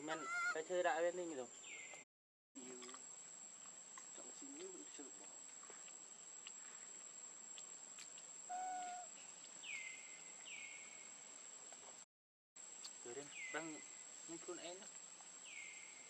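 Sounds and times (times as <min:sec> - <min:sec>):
insects droning: 0:00.0 - 0:02.0, 0:02.6 - 0:12.0, 0:12.6 - 0:16.0
quick falling calls: 0:00.1 - 0:00.6, 0:08.5 - 0:09.1.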